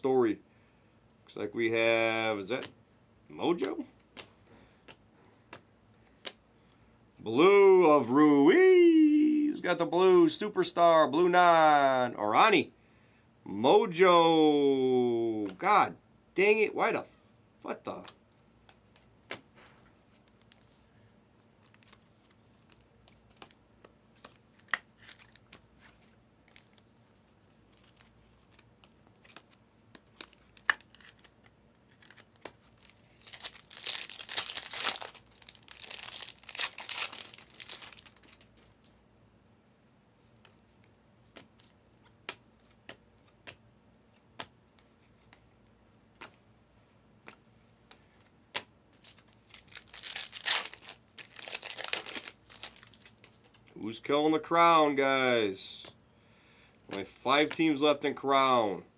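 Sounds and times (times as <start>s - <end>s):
cards clicking and shuffling: 3.5s - 6.4s, 17.8s - 20.8s, 21.5s - 39.0s, 40.2s - 46.4s, 47.2s - 53.8s, 56.9s - 58.0s
wrapper tearing and crinkling: 30.1s - 38.8s, 49.0s - 53.6s.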